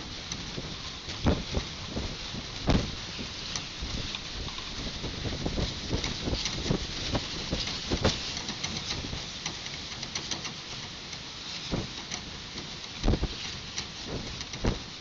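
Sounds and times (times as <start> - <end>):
low thumps from gusts: 0.0 - 9.3, 11.7 - 12.0, 13.0 - 15.0
wind buffeting microphone: 0.0 - 9.3, 11.7 - 12.0, 13.0 - 15.0
rain hissing: 0.0 - 15.0
raindrop ticks: 0.2 - 15.0.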